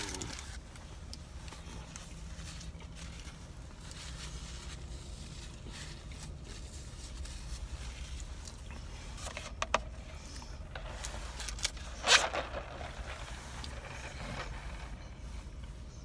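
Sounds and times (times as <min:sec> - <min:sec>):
man chewing a burger: 0:00.0 - 0:09.2
steady low hum: 0:00.0 - 0:16.0.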